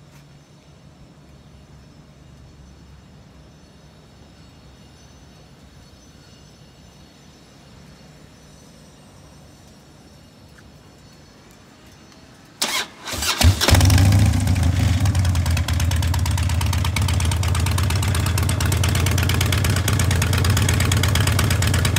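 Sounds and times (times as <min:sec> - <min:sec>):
motorcycle engine starting and idling: 0:12.6 - 0:21.9.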